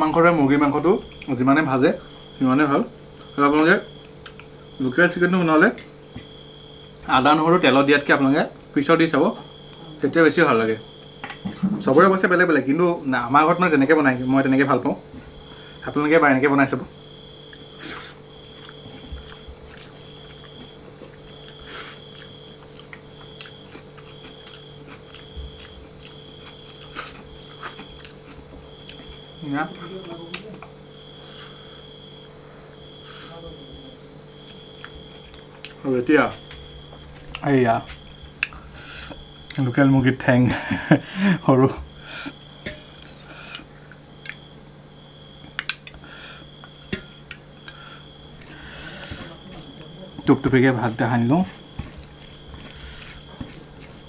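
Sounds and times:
steady low hum: 0.0 - 54.0
soft chewing: 17.3 - 29.5, 34.4 - 39.6, 51.5 - 54.0
fingers squishing food on plate: 51.6 - 54.0.

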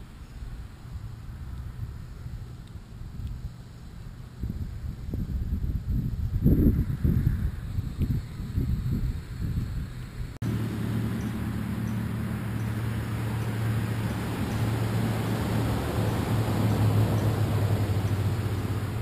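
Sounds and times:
machine humming: 10.4 - 19.0.

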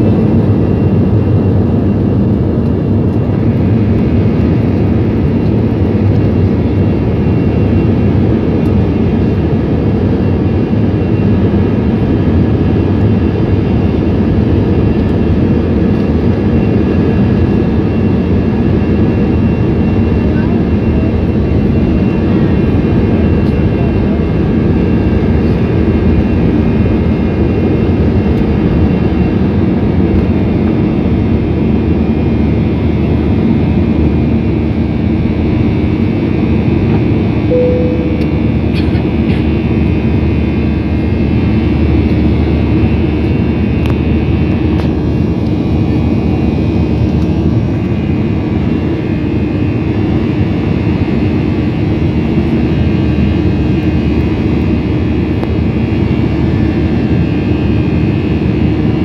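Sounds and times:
jet engines at takeoff thrust: 0.0 - 59.0
brief cabin tone: 37.5 - 39.6.

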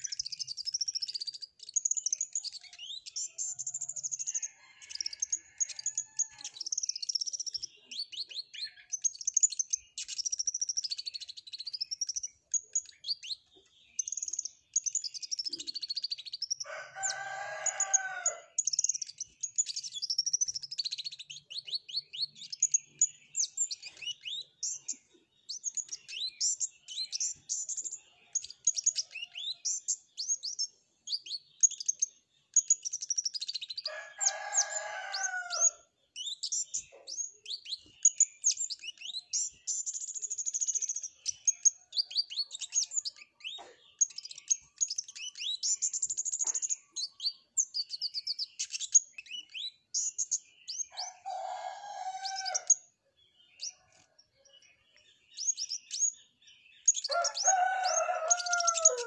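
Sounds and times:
bird chirping and trilling: 0.0 - 59.0.

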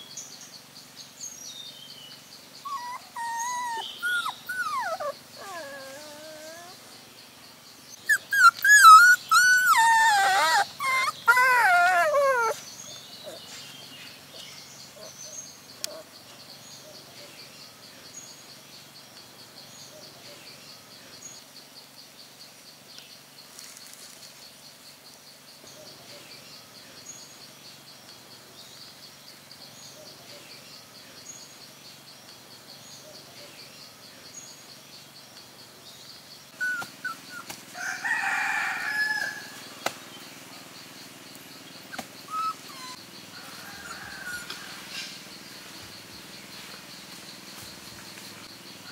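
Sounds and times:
puppy whining and whimpering: 2.6 - 6.8, 8.0 - 13.4, 36.6 - 37.5, 41.9 - 44.6.

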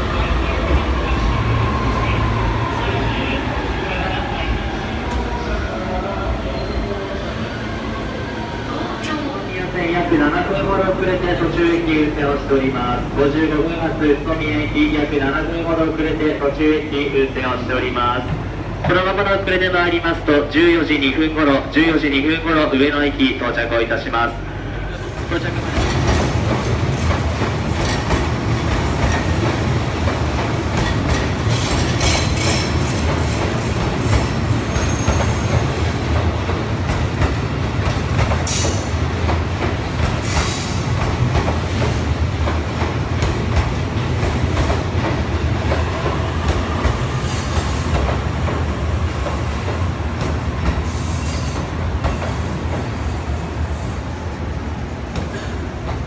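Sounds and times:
train wheels rumbling on rails: 0.0 - 56.0
high wheel squeals: 34.6 - 36.1.

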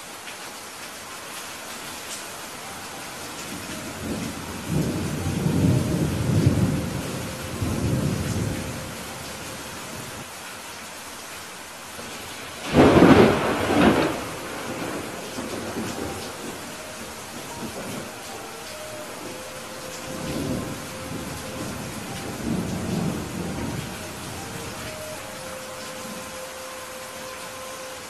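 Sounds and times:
steady rain falling: 0.0 - 28.0
thunder rumbling: 3.5 - 10.2, 12.0 - 26.4
loud thunderclap: 12.6 - 16.5.

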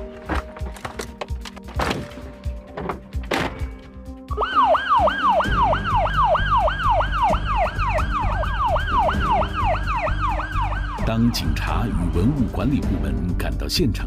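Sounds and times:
police siren yelp: 4.3 - 11.3.

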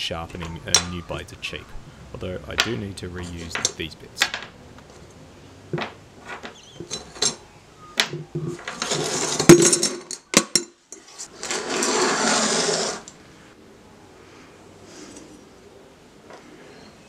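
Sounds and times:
brushing sweep across bench: 11.0 - 13.1.

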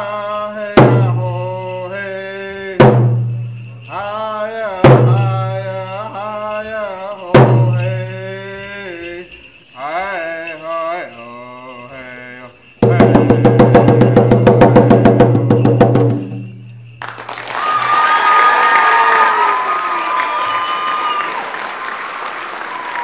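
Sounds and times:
man singing chant-like song: 0.0 - 3.2, 3.8 - 15.8
metal jingles on dress: 0.0 - 17.0
hand drum beats: 0.8 - 1.4, 2.8 - 3.9, 4.8 - 5.7, 7.4 - 8.1, 12.8 - 17.0.

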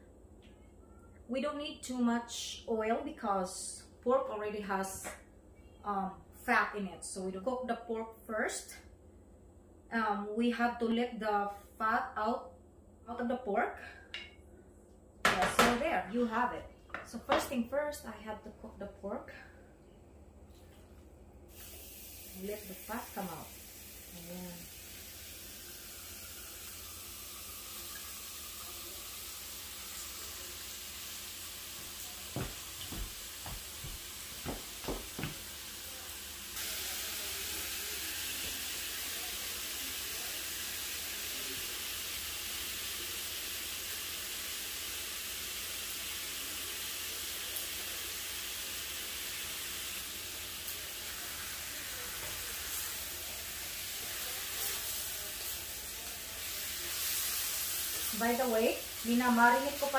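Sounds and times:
meat sizzling in a wok: 21.5 - 59.9.

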